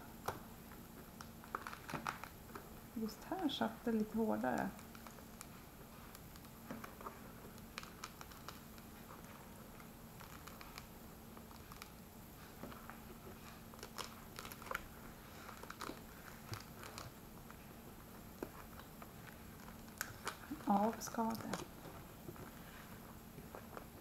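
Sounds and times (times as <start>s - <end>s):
gourd skin crackling and tearing: 1.2s - 2.6s, 13.7s - 17.6s, 18.3s - 21.8s.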